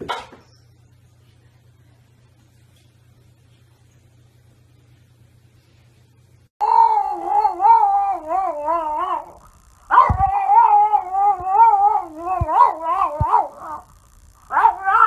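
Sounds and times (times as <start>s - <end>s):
dog howling: 6.6s - 13.9s, 14.5s - 15.0s.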